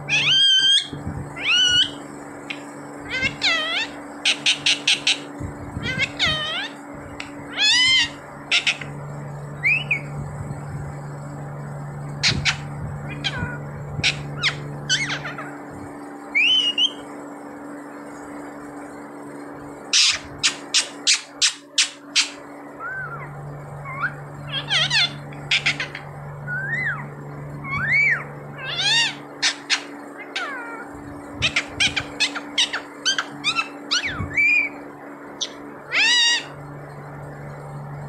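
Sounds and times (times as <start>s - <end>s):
parakeet screeching: 0.0s - 6.8s, 7.5s - 9.0s, 9.6s - 10.1s, 12.2s - 15.6s, 16.3s - 17.1s, 19.9s - 36.7s
parakeet whistled calls: 0.0s - 9.0s, 9.6s - 10.1s, 12.2s - 15.6s, 16.3s - 17.2s, 19.9s - 36.6s.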